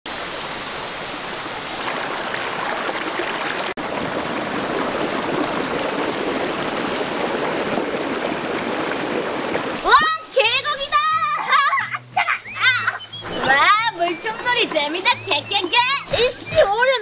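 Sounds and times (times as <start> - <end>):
stream rushing over rocks: 0.1 - 10.4.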